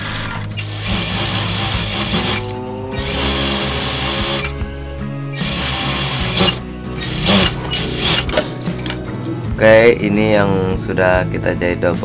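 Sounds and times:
background music: 0:00.0 - 0:12.0
industrial sewing machine running: 0:00.6 - 0:04.5, 0:05.4 - 0:08.4.

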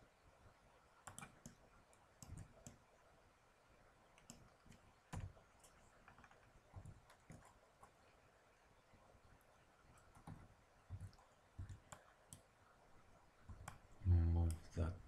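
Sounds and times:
mouse clicks: 0:01.0 - 0:01.6, 0:04.1 - 0:08.0
keyboard key presses: 0:04.2 - 0:05.4, 0:10.1 - 0:12.4.

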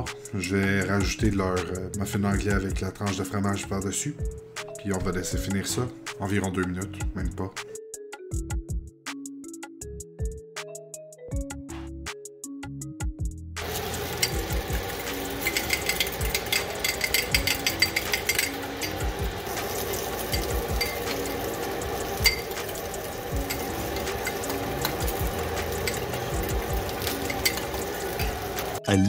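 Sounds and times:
fork clinking in glass bowl: 0:13.6 - 0:28.8
sausages sizzling in a pan: 0:13.6 - 0:28.8.

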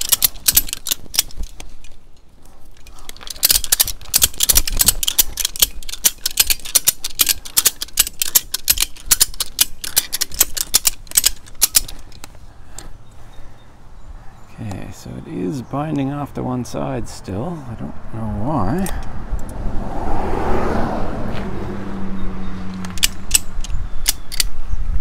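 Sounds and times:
ratchet strap winch clicking: 0:00.0 - 0:02.0, 0:02.7 - 0:12.9.

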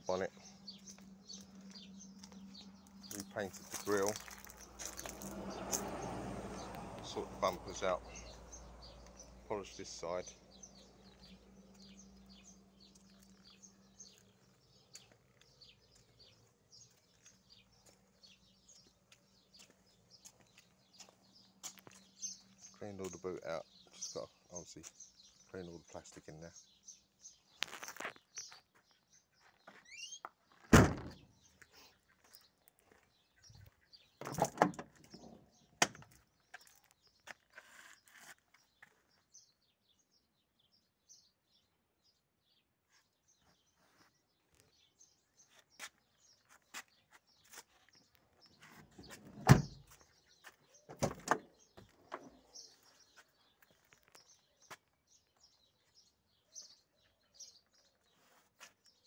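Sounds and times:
birds chirping faintly: 0:00.0 - 0:59.0
car doors shutting with thunks: 0:30.7 - 0:31.2, 0:34.2 - 0:36.0, 0:48.7 - 0:50.0, 0:50.9 - 0:52.4.

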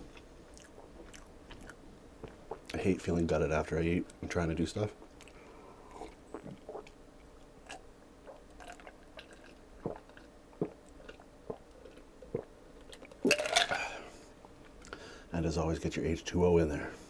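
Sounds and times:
person gulping water: 0:05.2 - 0:07.0, 0:07.6 - 0:14.1.

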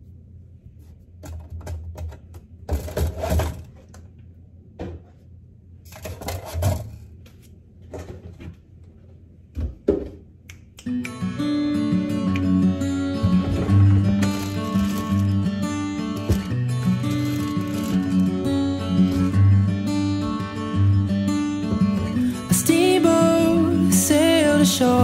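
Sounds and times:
guitar music: 0:10.8 - 0:25.0.

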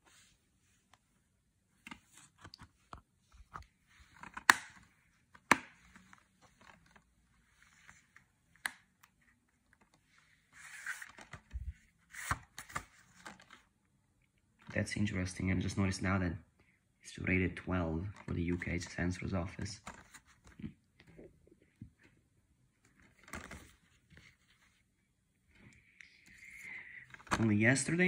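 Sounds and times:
rustling packaging handling: 0:01.8 - 0:13.7, 0:22.8 - 0:24.8, 0:27.0 - 0:28.0
plastic case snapping shut: 0:04.2 - 0:04.8.

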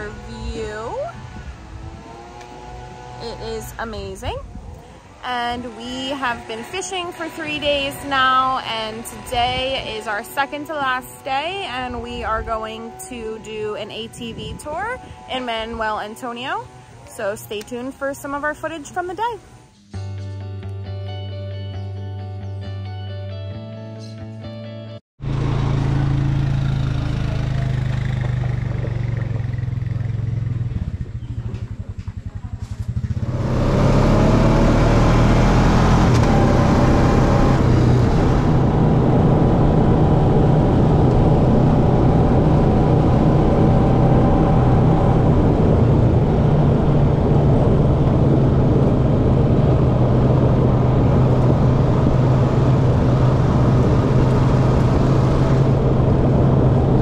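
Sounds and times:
atv engine running: 0:00.0 - 0:19.7, 0:25.2 - 0:57.0
noisy rush: 0:00.0 - 0:19.7, 0:33.2 - 0:57.0.

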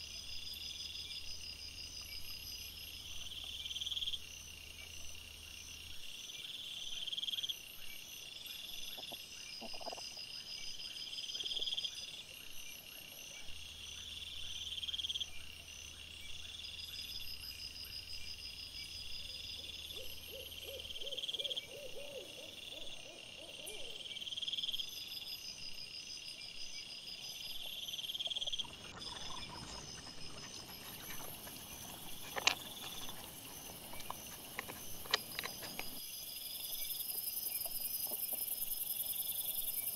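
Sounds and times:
rustling: 0:28.7 - 0:36.0.

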